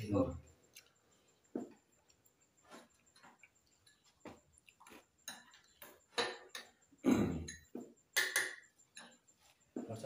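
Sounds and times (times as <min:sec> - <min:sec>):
chewing smacks: 0:02.0 - 0:05.9.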